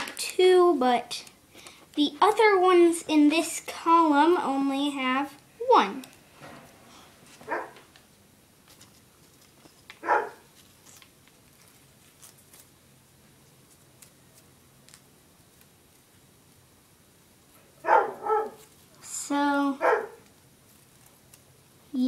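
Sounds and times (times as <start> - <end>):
dog barking: 7.5 - 7.8, 10.0 - 10.5, 17.8 - 18.6, 19.8 - 20.2
paper strips rustling: 8.6 - 16.6, 20.2 - 21.6.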